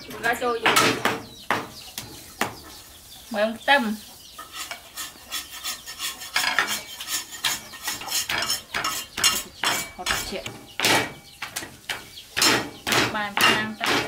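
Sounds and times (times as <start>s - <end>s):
kitchenware clattering and scraping: 0.0s - 1.2s, 4.4s - 14.0s.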